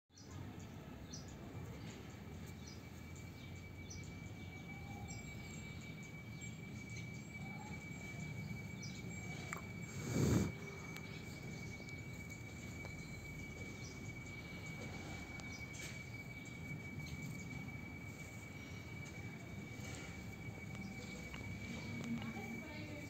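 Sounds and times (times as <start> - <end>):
bird chirps: 0.1 - 23.0
high-pitched insect buzz: 4.6 - 23.0.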